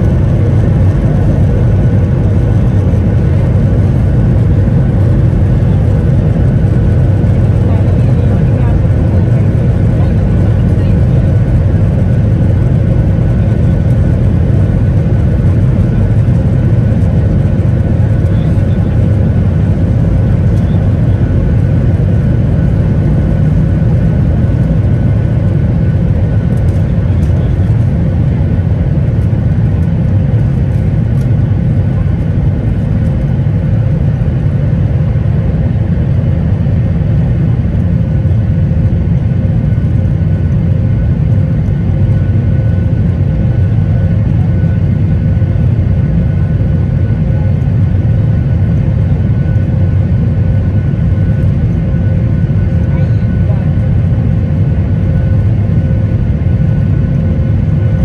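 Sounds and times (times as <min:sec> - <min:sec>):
faint engine whine: 0:00.0 - 0:58.0
jet engine rumble in cabin: 0:00.0 - 0:58.0.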